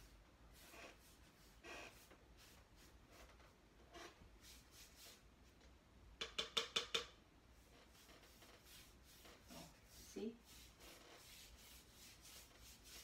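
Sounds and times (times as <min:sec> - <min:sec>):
brush strokes on wall: 0:00.0 - 0:05.7, 0:07.5 - 0:13.0
paintbrush tapping paint cup: 0:06.2 - 0:07.2.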